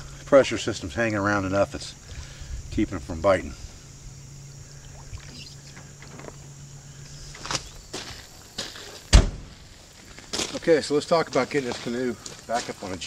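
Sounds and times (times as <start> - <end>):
low hum: 0.0 - 11.1
water and paddling: 1.8 - 3.1, 4.7 - 6.2
deep thump of hatch shutting: 9.1 - 9.6.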